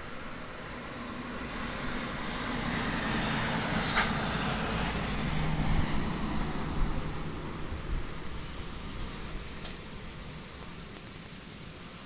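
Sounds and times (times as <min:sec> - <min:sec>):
wind gusting through trees: 0:00.0 - 0:12.0.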